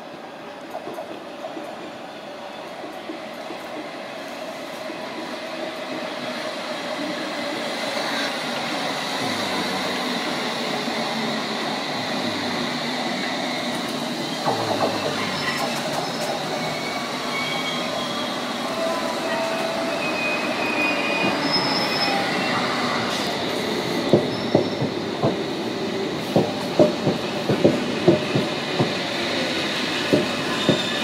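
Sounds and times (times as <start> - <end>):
train rail noise: 0.0 - 31.0
train wheels squealing: 7.0 - 26.0, 27.9 - 31.0.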